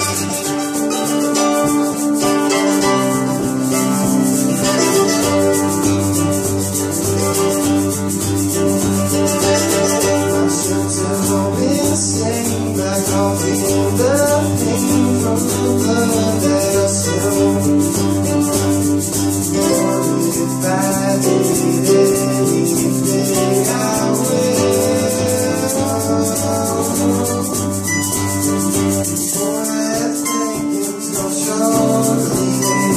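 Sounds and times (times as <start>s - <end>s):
fast shaker rhythm: 0.0s - 32.9s
person singing: 0.0s - 32.9s
strummed acoustic guitars: 0.0s - 32.9s.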